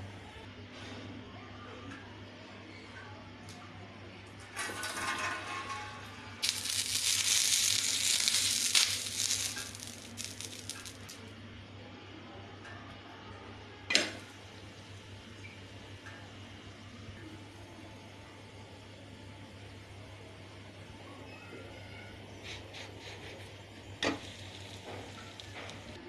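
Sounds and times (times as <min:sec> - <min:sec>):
water sizzling on hot griddle: 0:04.7 - 0:11.2, 0:23.0 - 0:26.0
sharp sound of bread on griddle: 0:06.4 - 0:11.2, 0:24.0 - 0:26.0.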